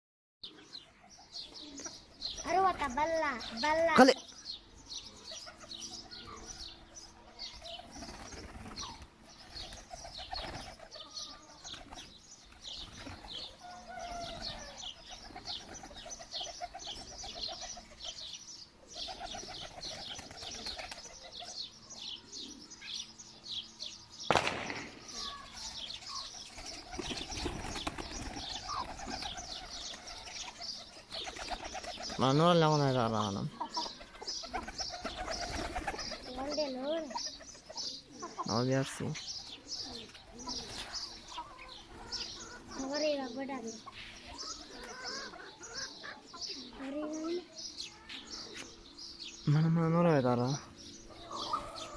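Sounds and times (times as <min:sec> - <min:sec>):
pigeons cooing: 0:04.5 - 0:23.1, 0:25.1 - 0:32.2, 0:33.1 - 0:38.5, 0:39.2 - 0:47.5, 0:50.6 - 0:51.9
wings flapping: 0:07.6 - 0:18.2, 0:19.0 - 0:21.6, 0:24.3 - 0:32.3, 0:33.8 - 0:37.7
sharp loud clap: 0:24.3 - 0:25.2.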